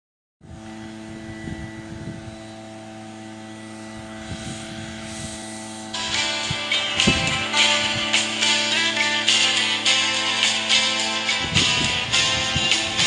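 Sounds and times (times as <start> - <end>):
small petrol engine droning: 0.4 - 13.0
guitar music: 5.4 - 13.0.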